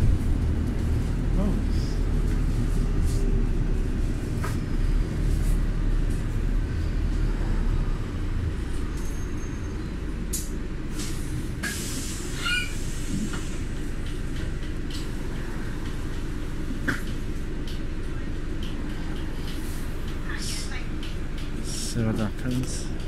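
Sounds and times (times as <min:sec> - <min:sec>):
vehicle rumble from inside: 0:00.0 - 0:23.0
brief high squeal: 0:12.3 - 0:12.8.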